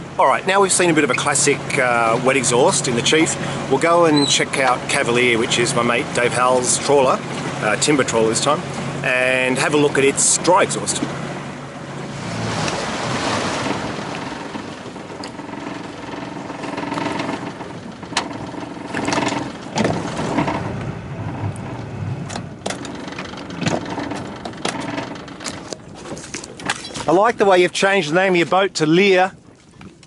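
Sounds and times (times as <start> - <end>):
motorboat engine running: 0.0 - 30.0
water splashing along hull: 0.0 - 30.0
sharp knocks: 22.3 - 25.8.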